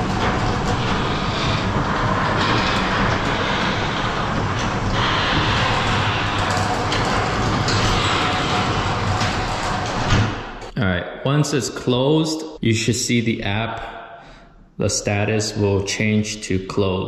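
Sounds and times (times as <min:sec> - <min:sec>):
garage door opener rumbling: 0:00.0 - 0:10.8.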